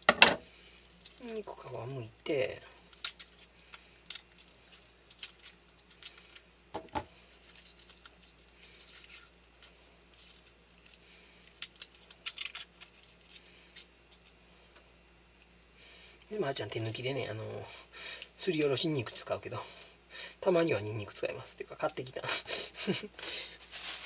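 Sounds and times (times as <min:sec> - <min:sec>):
garlic skin crackling: 0:00.5 - 0:06.5, 0:07.3 - 0:19.9.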